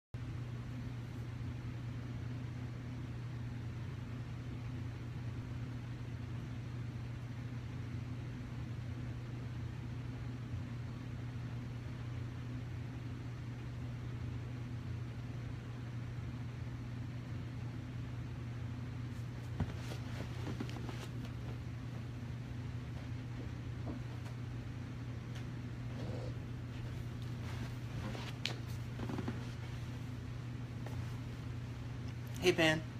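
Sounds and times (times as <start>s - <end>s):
low hum with hiss: 0.2s - 32.9s
person rustling on couch: 19.1s - 24.5s, 25.9s - 32.2s.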